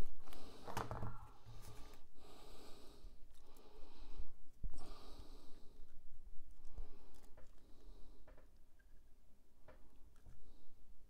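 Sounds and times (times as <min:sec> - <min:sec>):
man breathing heavily through nose: 0:00.2 - 0:06.0.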